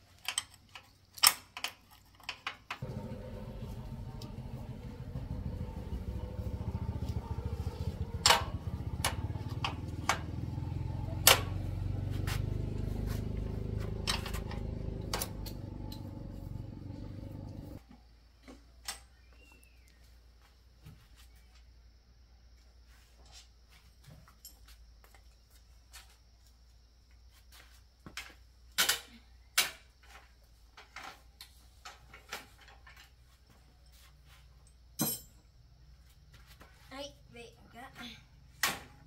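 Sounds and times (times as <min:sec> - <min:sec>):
low mechanical rumble: 0:02.8 - 0:17.8.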